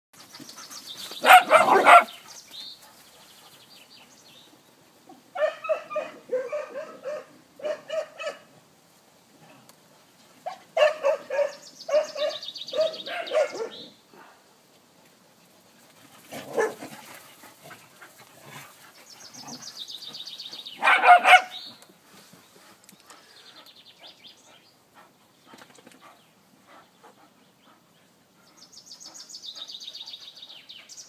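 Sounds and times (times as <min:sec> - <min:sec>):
dogs barking: 0:01.2 - 0:02.2, 0:05.4 - 0:08.5, 0:10.5 - 0:13.9, 0:16.4 - 0:16.9, 0:20.8 - 0:21.6.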